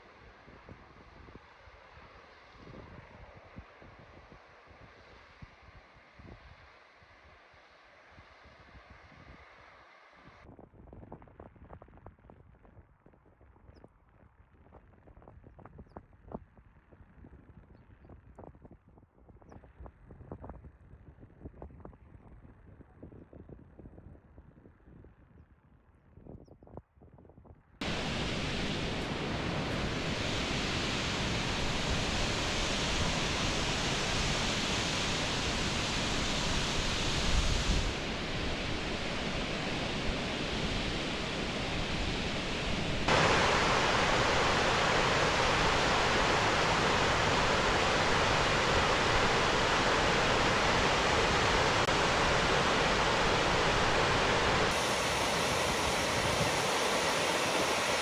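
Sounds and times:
waterfall rushing water: 27.8 - 58.0.

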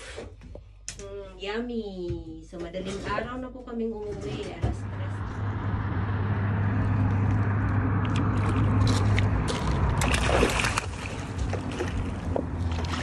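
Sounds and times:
water sloshing against rocks: 8.0 - 13.0
water splash: 8.0 - 13.0.

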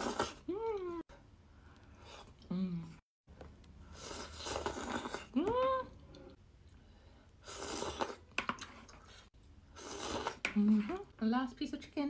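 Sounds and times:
person humming mm: 2.4 - 3.0.

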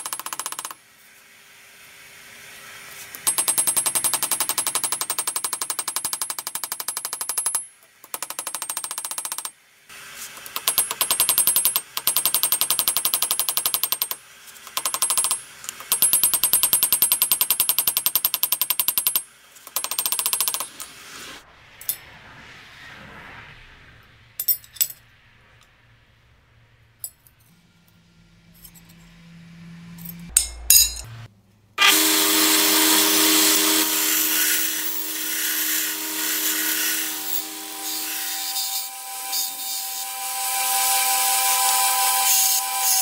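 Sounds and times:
machine hammering: 0.0 - 0.8, 3.2 - 9.6, 10.4 - 20.8.

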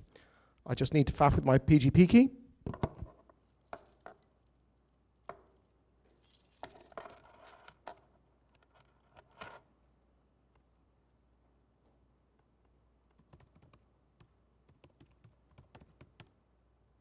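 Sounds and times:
light metallic clinks: 4.9 - 7.0.

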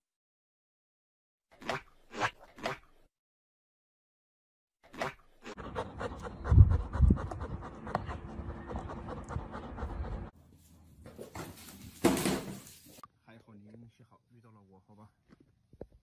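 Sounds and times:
dog panting: 5.5 - 10.3.

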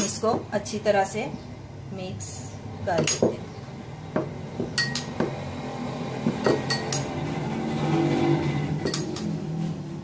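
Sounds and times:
sharp clinks: 4.7 - 5.3, 6.4 - 7.2.

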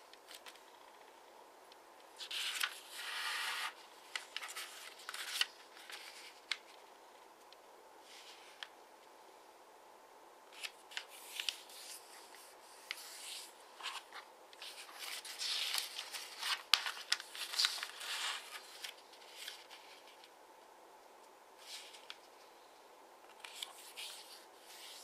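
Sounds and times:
paper rustling and creasing: 2.1 - 6.8, 10.5 - 20.3, 21.6 - 22.4, 23.2 - 25.0.

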